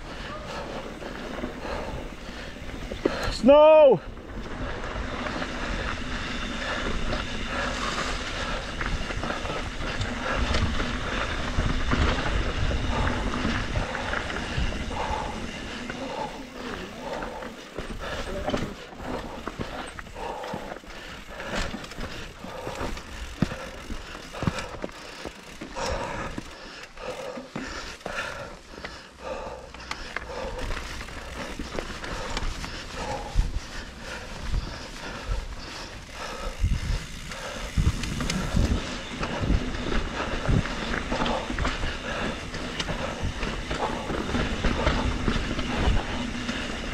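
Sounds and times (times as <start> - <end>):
wind rumbling on microphone: 0.0 - 24.8, 30.3 - 46.9
tyres rolling over dirt and rocks: 0.0 - 29.1, 29.7 - 46.9
bike knocking and rattling: 0.0 - 46.9
rider breathing hard: 0.0 - 46.9
wind on microphone: 33.0 - 46.9.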